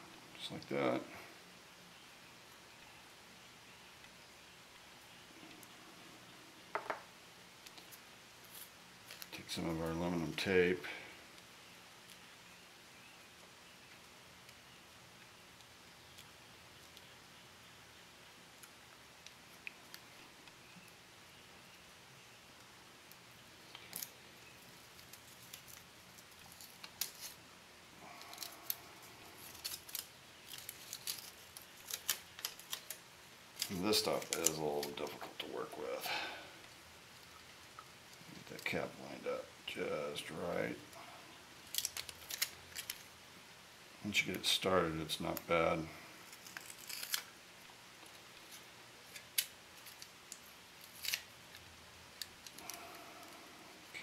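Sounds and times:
foil tape crinkling: 7.6s - 9.4s, 23.6s - 27.4s, 28.0s - 35.5s, 41.6s - 43.2s, 46.2s - 54.0s.

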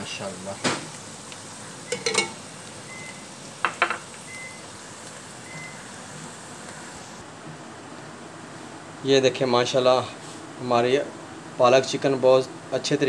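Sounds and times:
steady low hiss: 0.0s - 13.0s
metal spoon clinking on a pot: 1.9s - 2.4s.

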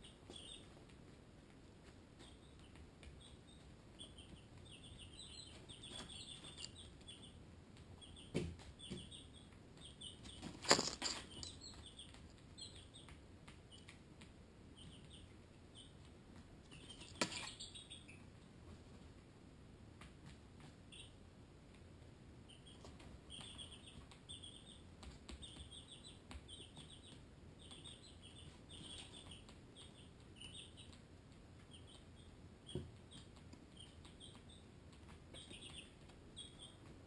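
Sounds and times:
chicks peeping: 0.0s - 19.1s, 20.0s - 37.0s
rustling: 10.2s - 12.4s.

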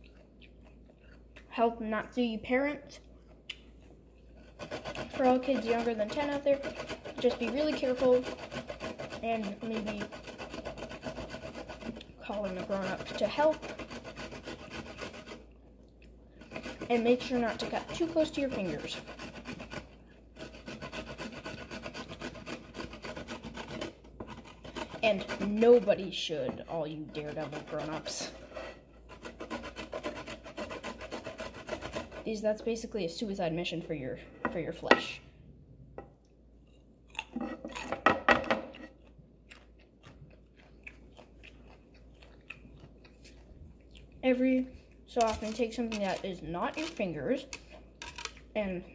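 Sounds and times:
carrot grating: 4.2s - 15.6s, 16.3s - 32.4s, 36.7s - 39.1s, 45.1s - 48.7s.

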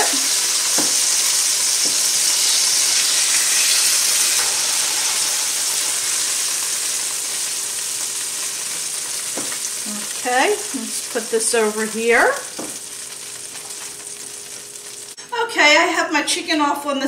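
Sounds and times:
chicken sizzling in oil: 0.0s - 15.2s.

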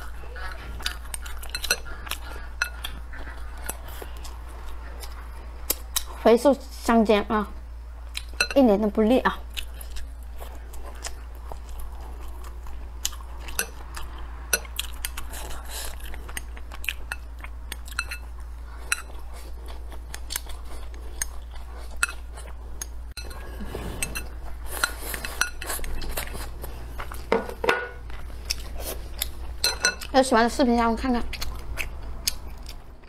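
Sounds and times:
chewing food: 0.0s - 6.2s, 9.3s - 27.3s, 28.0s - 33.0s
rustling and slurping: 17.8s - 27.3s.

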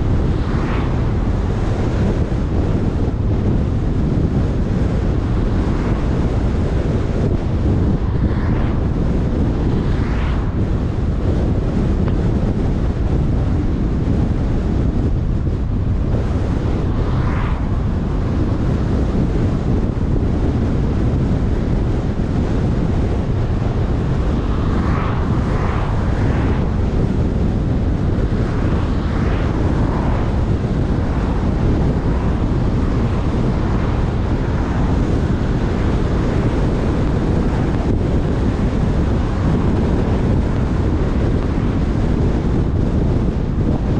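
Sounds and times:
car road noise: 0.0s - 43.9s
wind buffeting microphone: 0.0s - 43.9s.

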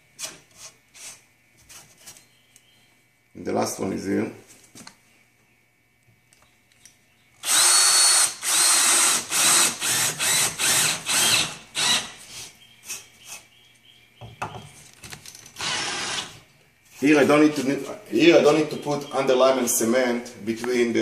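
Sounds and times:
power drill driving screw: 7.4s - 12.2s, 15.6s - 16.4s.

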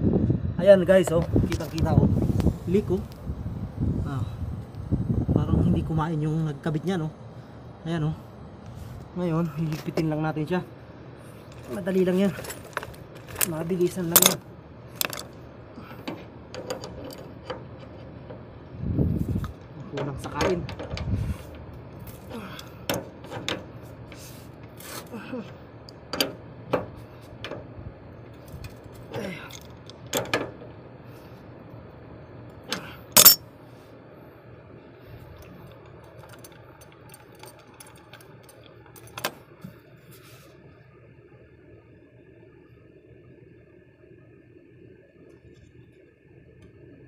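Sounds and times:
metal wrenches clanking on metal: 11.6s - 14.4s, 15.0s - 15.3s, 16.0s - 18.0s, 33.2s - 33.4s.

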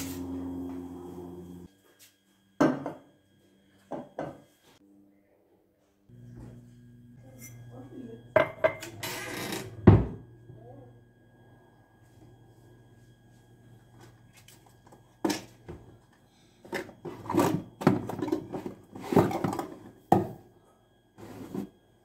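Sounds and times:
kitchen items knocking and clunking: 2.6s - 3.1s, 8.3s - 9.0s, 9.6s - 10.3s, 16.6s - 20.4s.

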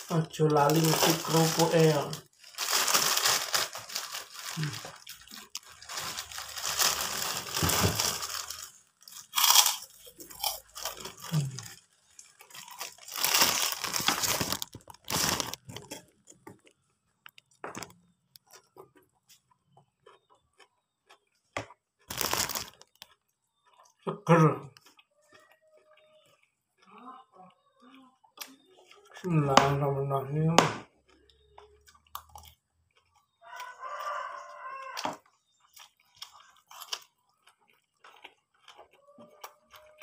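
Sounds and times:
plastic bag crinkling: 0.0s - 18.0s, 22.1s - 23.1s
crackers crunching: 0.0s - 26.9s, 30.8s - 40.0s
chewing clicks: 16.6s - 24.0s.

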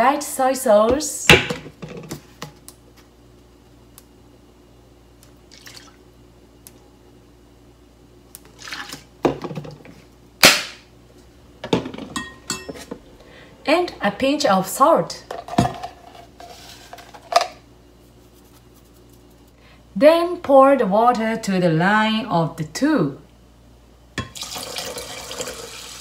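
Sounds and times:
metal spoon clinking pot: 12.2s - 12.8s.

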